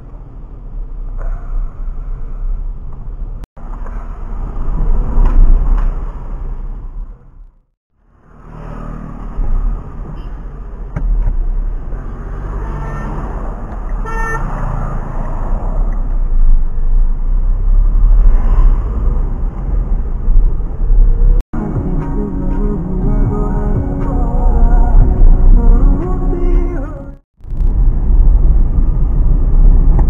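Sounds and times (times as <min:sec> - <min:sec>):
tyre and road noise: 0:00.0 - 0:21.4, 0:23.8 - 0:30.0
car engine: 0:00.0 - 0:23.1
car horn toot: 0:14.0 - 0:14.5
heavy low rumble: 0:15.5 - 0:30.0.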